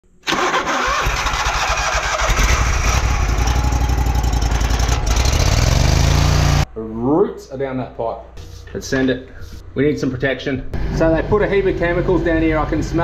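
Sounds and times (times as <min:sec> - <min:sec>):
engine starting and running: 0:00.2 - 0:06.6.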